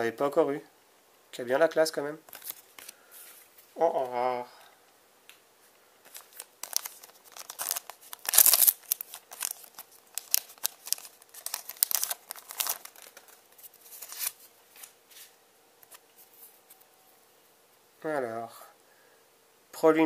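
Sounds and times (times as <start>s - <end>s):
foil pack crinkling and tearing: 6.0s - 14.9s.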